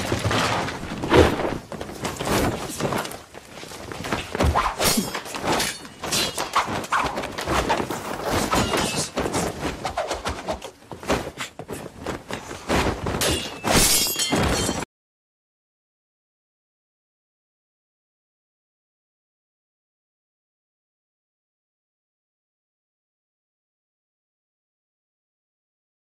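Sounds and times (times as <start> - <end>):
fight hits and swishes: 0.0 - 14.8
ringing sword clashes: 13.2 - 14.8.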